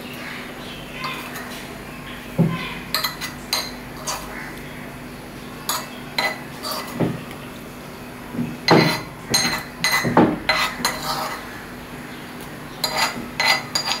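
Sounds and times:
metal spoon scraping a plate: 2.9s - 4.4s, 5.7s - 7.0s, 8.7s - 11.6s, 12.8s - 14.0s.

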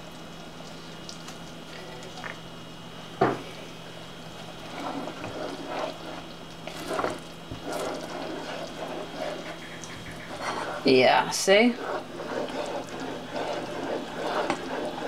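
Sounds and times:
spoon scraping thick sauce: 4.6s - 15.0s.

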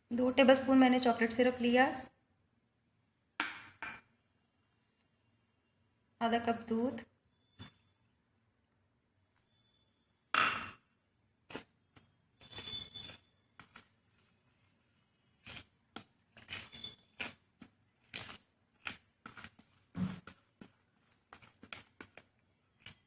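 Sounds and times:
spoon stirring batter in bowl: 11.4s - 23.0s.

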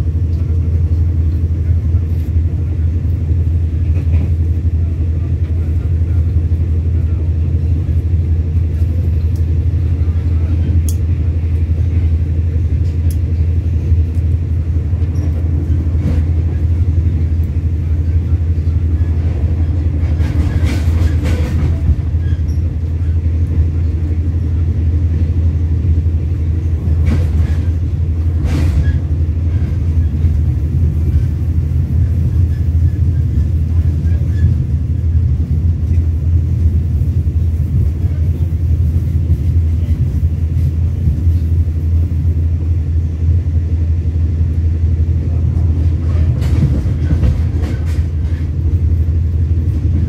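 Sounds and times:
train coach rumbling at speed: 0.0s - 50.0s
clanks and rattles: 19.2s - 22.7s.

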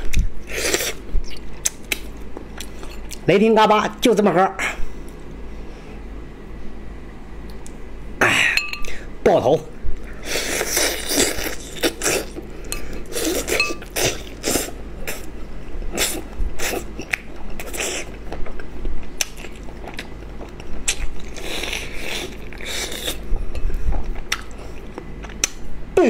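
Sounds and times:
person gnawing and chewing: 0.0s - 3.2s, 10.2s - 15.3s, 15.9s - 25.7s.

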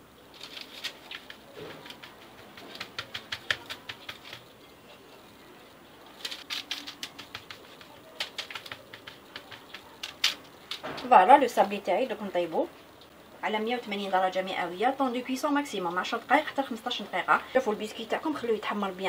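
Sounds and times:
hands tapping dough: 1.2s - 4.5s, 6.5s - 11.1s.

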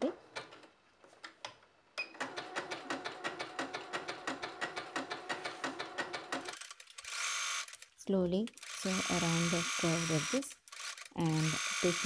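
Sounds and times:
sewing machine stitching: 2.0s - 7.8s, 8.6s - 12.0s.

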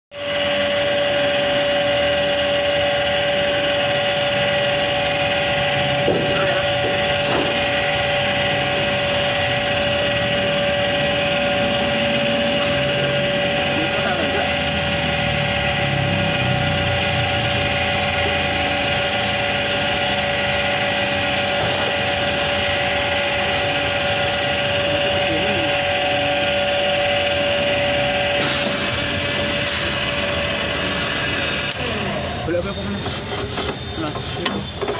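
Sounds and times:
pipe threading machine whine: 0.1s - 34.9s.

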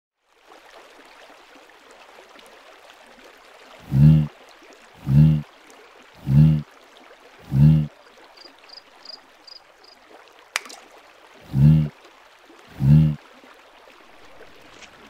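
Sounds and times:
running water: 0.3s - 15.0s
short loud low-pitched sounds: 3.8s - 4.3s, 11.4s - 11.9s.

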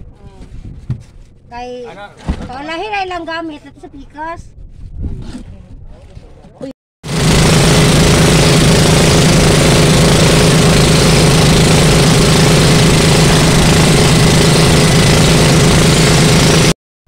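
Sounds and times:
boat engine running: 7.0s - 16.8s
water rushing past hull: 7.1s - 16.7s.

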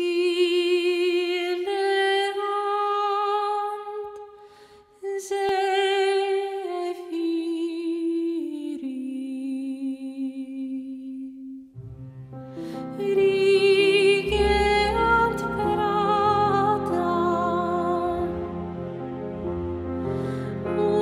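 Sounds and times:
person singing wordless melody: 5.0s - 19.4s, 20.0s - 21.0s.

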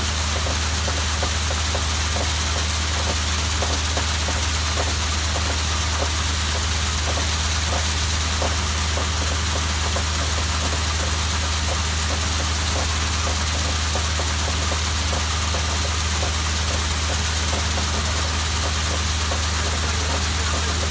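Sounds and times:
water jetting hiss: 0.0s - 20.9s
loud engine drone: 8.4s - 20.9s.

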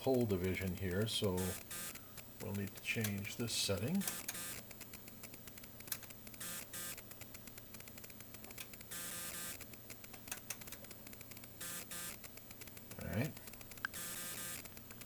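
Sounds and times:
short buzzing bursts: 1.2s - 2.4s, 3.6s - 4.8s, 6.2s - 8.1s, 8.8s - 9.7s, 11.2s - 12.8s, 13.4s - 14.8s.

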